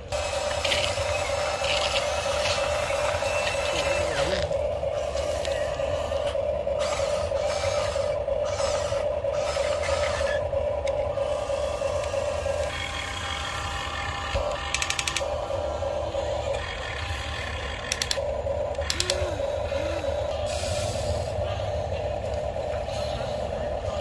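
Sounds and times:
toy excavator motor whine: 0:00.0 - 0:24.0
gear clicking rattles: 0:00.4 - 0:13.3, 0:14.1 - 0:15.5, 0:16.5 - 0:20.0.

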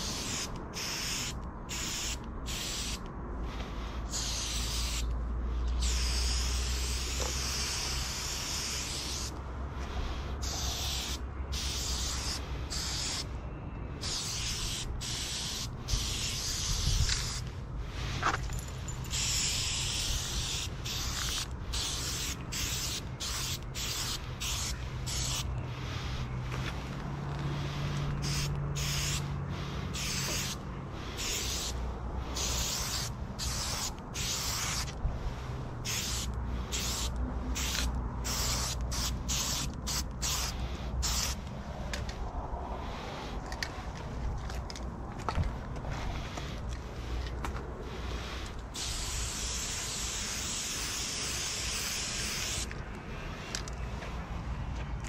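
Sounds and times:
spray paint can hissing: 0:00.0 - 0:13.3, 0:14.0 - 0:18.3, 0:18.9 - 0:26.3, 0:27.5 - 0:35.0, 0:35.8 - 0:41.4, 0:48.1 - 0:52.7.

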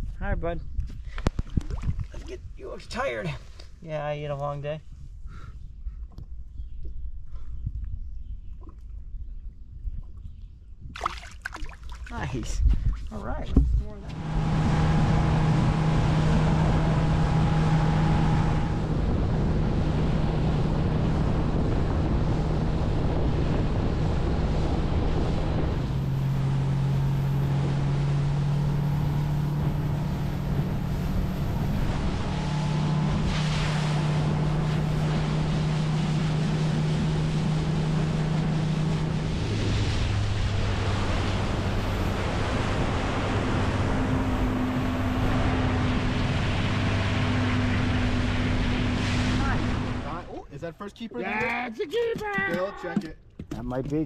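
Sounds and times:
wind noise on microphone: 0:00.0 - 0:50.1
water rushing: 0:11.0 - 0:50.5
outboard motor running: 0:12.1 - 0:50.4.

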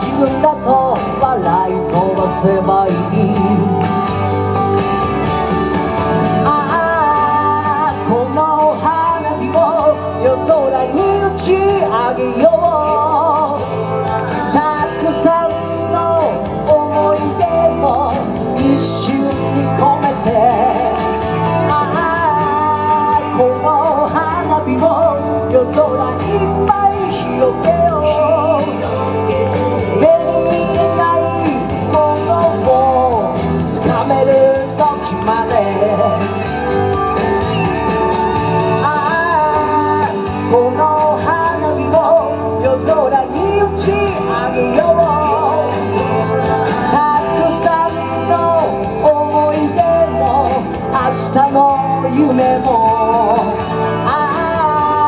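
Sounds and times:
guitar: 0:00.0 - 0:55.0
person singing: 0:00.0 - 0:55.0.

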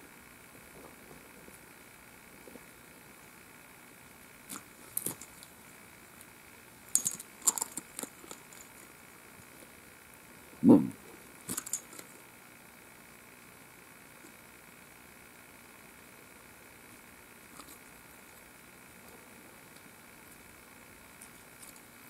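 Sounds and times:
metal chain clinks and rattles: 0:06.9 - 0:08.9, 0:11.5 - 0:12.2.

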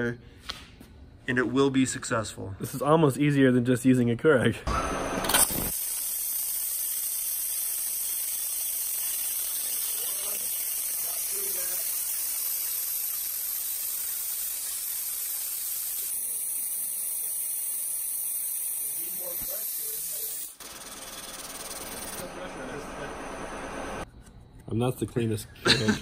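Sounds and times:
high-pressure water jet hissing: 0:05.5 - 0:24.0.

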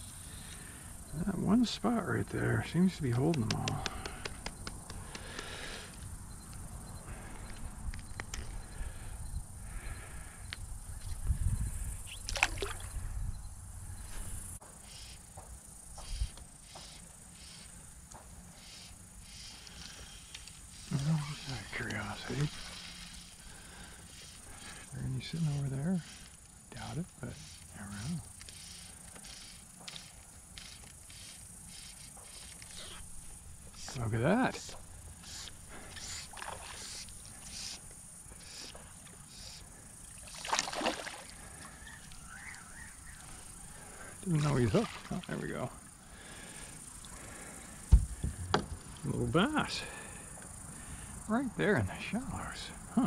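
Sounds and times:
insects chirping: 0:00.0 - 0:53.0
fly line swishing: 0:35.2 - 0:37.8, 0:38.4 - 0:42.2
fish splashing at water surface: 0:40.2 - 0:41.4.

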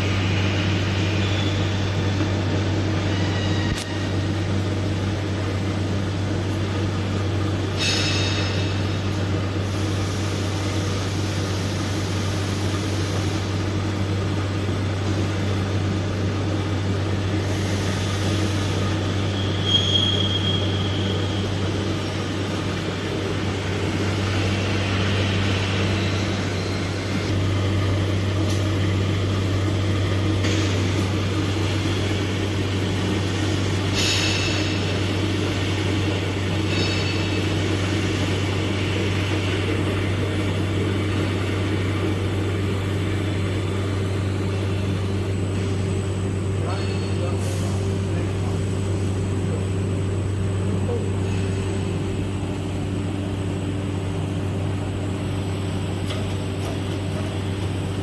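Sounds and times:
milling machine motor hum: 0:08.6 - 0:46.6
high-pitched squeals: 0:19.3 - 0:21.6.

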